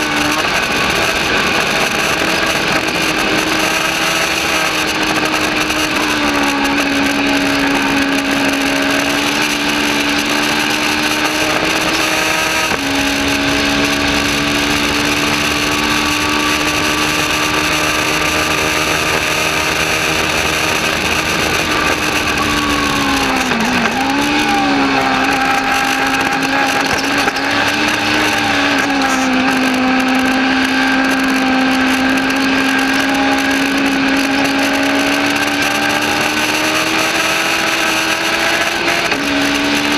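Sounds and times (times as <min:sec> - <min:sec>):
motorcycle engine at high revs: 0:00.0 - 0:39.9.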